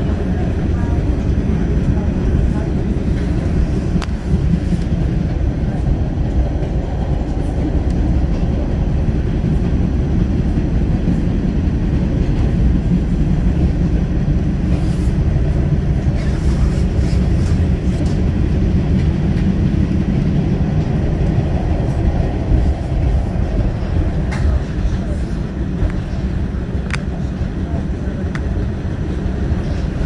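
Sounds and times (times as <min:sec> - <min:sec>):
subway wheels rumbling on rails: 0:00.0 - 0:30.0.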